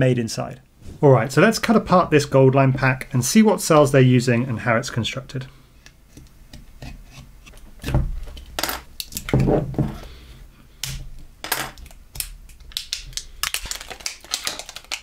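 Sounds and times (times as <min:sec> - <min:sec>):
plastic wrap crinkling and tearing: 0:11.8 - 0:15.0.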